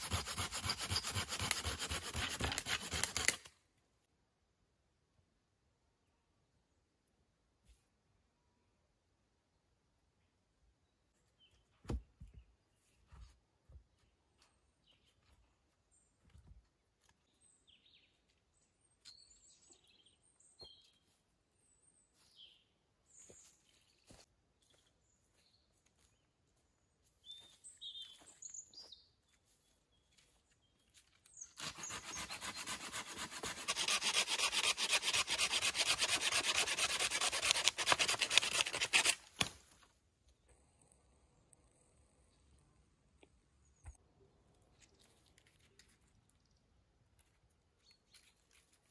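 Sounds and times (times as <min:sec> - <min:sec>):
saw cutting through wood: 0:00.0 - 0:03.5, 0:31.6 - 0:39.3.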